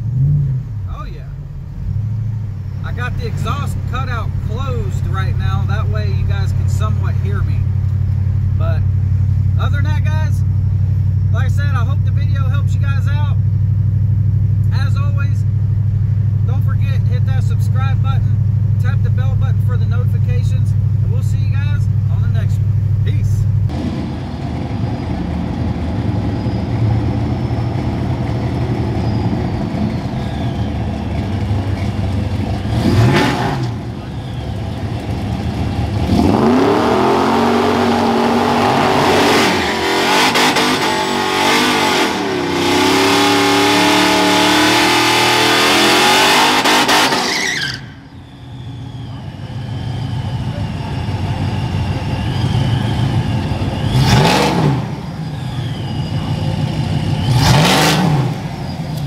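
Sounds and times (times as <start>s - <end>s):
engine at high revs: 0.0s - 1.1s, 23.7s - 47.9s, 48.8s - 59.0s
pickup truck idling and revving: 0.0s - 59.0s.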